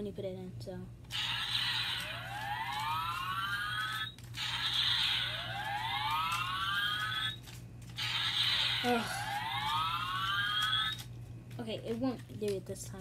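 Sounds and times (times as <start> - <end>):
toy electronic whoosh sound effect: 1.1 - 7.4, 8.0 - 11.0.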